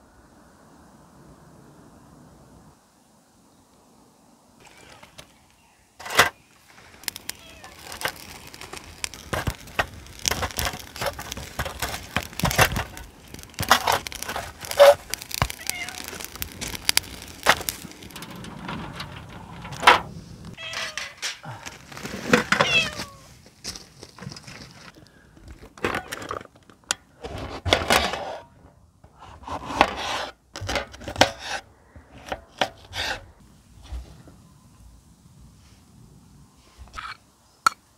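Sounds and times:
sticks scraping charcoal briquettes: 0:04.6 - 0:05.4, 0:06.0 - 0:26.6, 0:29.1 - 0:33.3.

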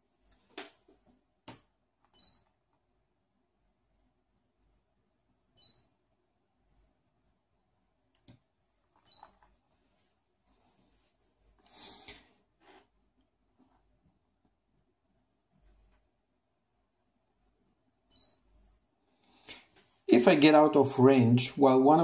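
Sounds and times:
piezo buzzer short high beeps: 0:02.2 - 0:02.4, 0:05.6 - 0:05.9, 0:09.1 - 0:09.3, 0:18.1 - 0:18.4.

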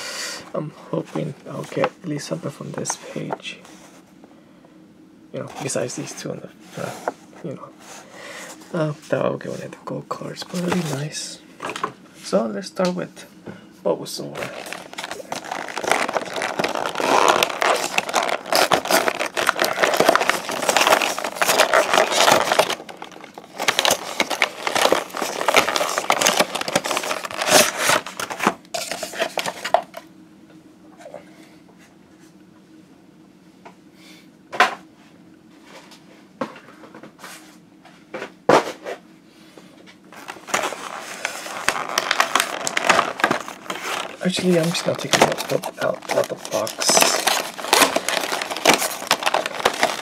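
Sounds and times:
plastic packaging crackling: 0:14.3 - 0:30.0, 0:40.1 - 0:50.0.

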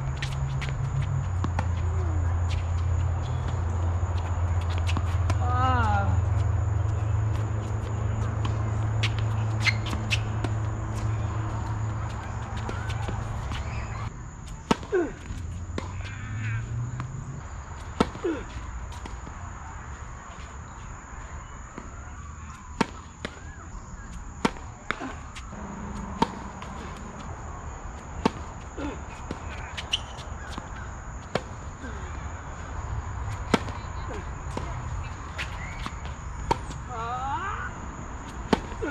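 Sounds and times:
tennis ball bouncing on hard court: 0:06.4 - 0:14.1, 0:24.4 - 0:27.3, 0:28.1 - 0:28.6, 0:29.2 - 0:31.6, 0:33.3 - 0:36.9, 0:38.2 - 0:38.8
tennis ball hit by rackets: 0:08.4 - 0:14.0, 0:14.6 - 0:17.2, 0:21.8 - 0:23.6, 0:24.4 - 0:27.3, 0:28.1 - 0:28.6, 0:29.2 - 0:31.6, 0:33.3 - 0:36.9, 0:38.2 - 0:38.9.

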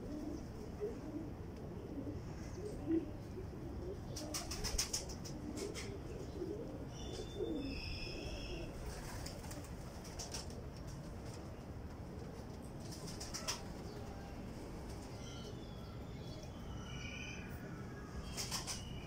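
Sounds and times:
pigeons cooing: 0:00.0 - 0:10.7, 0:12.0 - 0:19.0
wings flapping: 0:04.2 - 0:05.9, 0:08.8 - 0:11.4, 0:12.8 - 0:14.0, 0:18.3 - 0:18.9.

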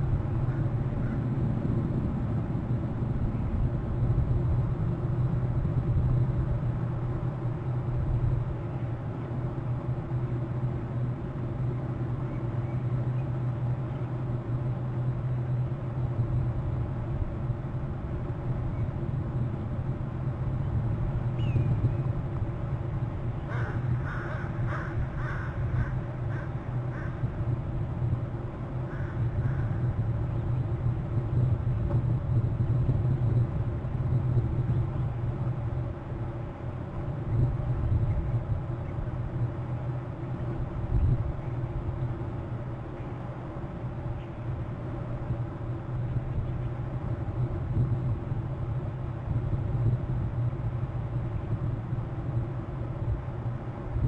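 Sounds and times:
steady low hum: 0:00.0 - 0:54.0
crow cawing: 0:23.5 - 0:27.2, 0:28.9 - 0:29.8.

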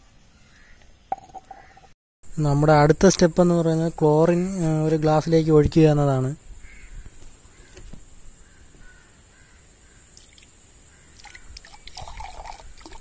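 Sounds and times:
liquid pouring into a glass: 0:11.2 - 0:13.0.

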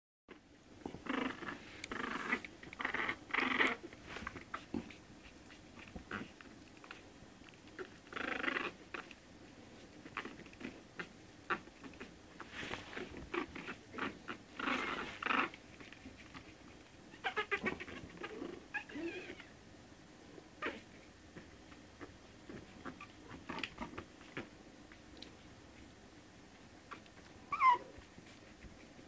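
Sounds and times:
puppy paws clicking and scuffling: 0:00.8 - 0:19.4, 0:21.3 - 0:29.0
puppies yipping and squeaking: 0:17.1 - 0:19.5, 0:26.9 - 0:28.0.

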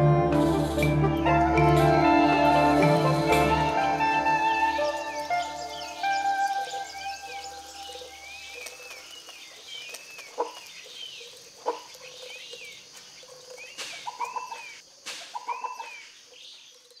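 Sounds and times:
sharp low bird calls: 0:13.5 - 0:16.2.

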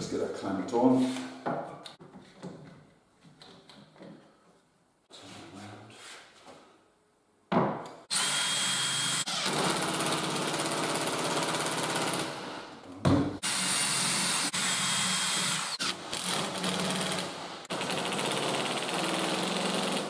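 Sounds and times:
knock: 0:07.5 - 0:07.8
cordless drill boring into wood: 0:08.1 - 0:12.2, 0:13.4 - 0:20.0.

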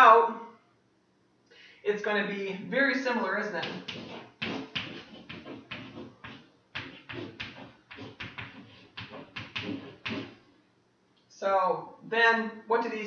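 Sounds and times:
chalk writing on blackboard: 0:03.6 - 0:10.4.

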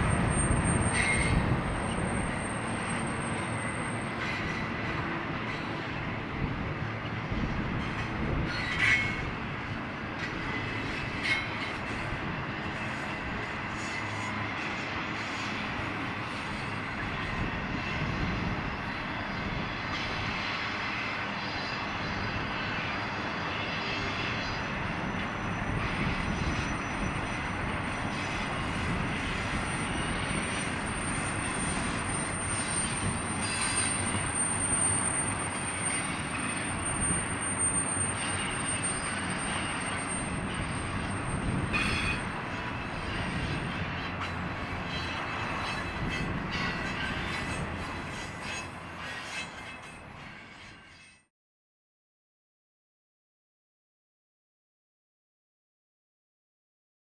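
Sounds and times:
high-pitched wheel squeal: 0:00.0 - 0:06.0, 0:07.8 - 0:09.3, 0:22.9 - 0:51.3
freight train rolling past: 0:00.0 - 0:51.3.

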